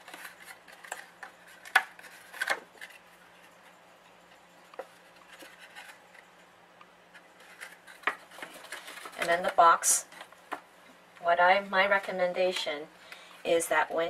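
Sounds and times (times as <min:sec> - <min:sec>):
paper rustling: 0:00.0 - 0:03.8, 0:04.6 - 0:06.3, 0:07.1 - 0:10.5.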